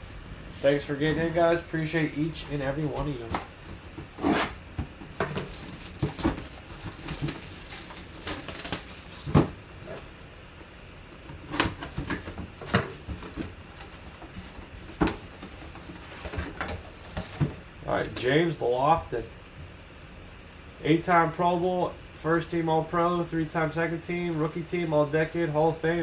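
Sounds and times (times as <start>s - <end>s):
cardboard scraping: 3.8s - 10.2s
crinkling plastic: 5.1s - 10.1s
knife cutting shrink wrap: 5.2s - 10.0s.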